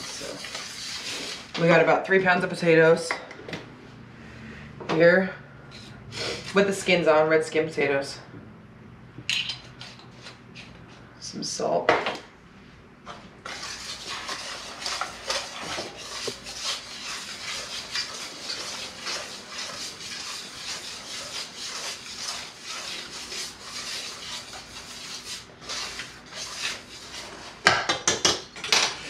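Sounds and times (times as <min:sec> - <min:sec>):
whisk scraping metal pan: 0:00.0 - 0:01.8, 0:13.4 - 0:27.7.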